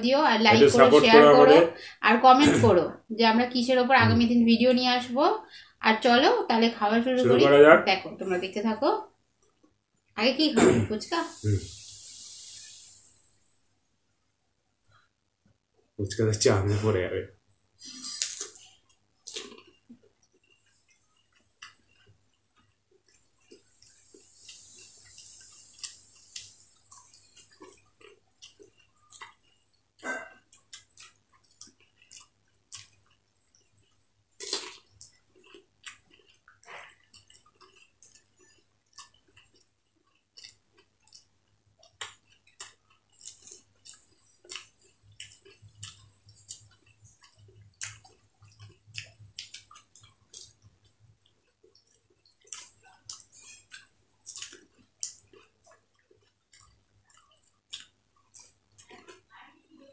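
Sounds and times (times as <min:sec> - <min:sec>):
wet chewing: 0:17.8 - 0:59.8.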